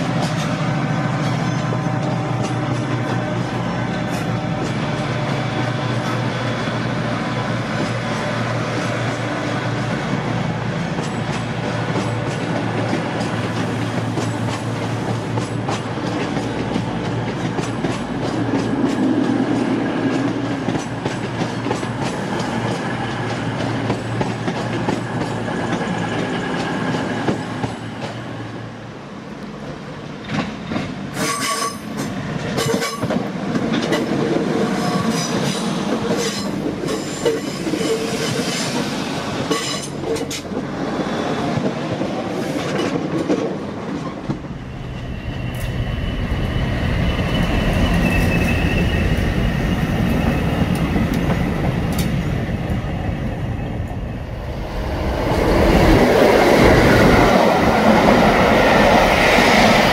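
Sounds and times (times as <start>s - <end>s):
train wheels clicking over rail joints: 0.0s - 28.4s, 30.0s - 45.8s
train rumbling: 0.0s - 59.9s.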